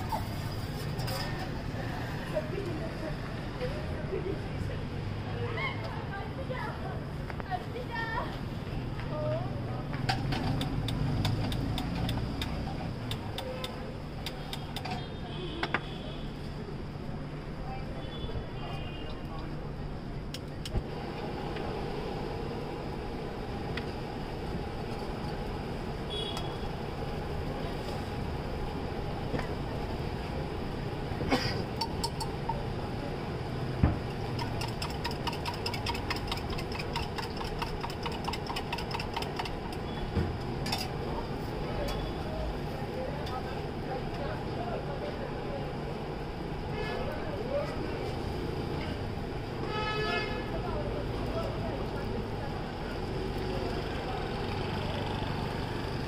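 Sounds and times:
metal spatula tapping griddle: 34.3s - 39.8s.

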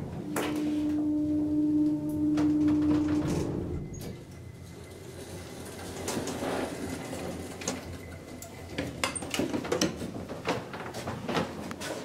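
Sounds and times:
elevator machine hum: 0.0s - 9.0s
elevator doors clicking and knocking: 0.0s - 11.3s.

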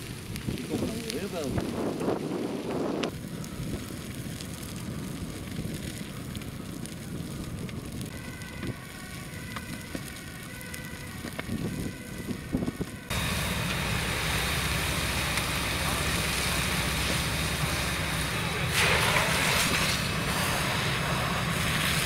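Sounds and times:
fire crackling and popping: 0.0s - 22.0s
steady rushing noise: 10.9s - 22.0s.

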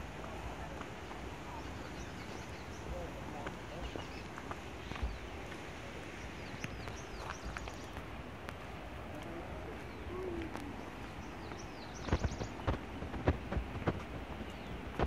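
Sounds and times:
background hiss: 0.0s - 15.0s
bird chirping: 1.4s - 5.3s, 6.2s - 8.0s, 9.8s - 13.4s, 14.3s - 15.0s.

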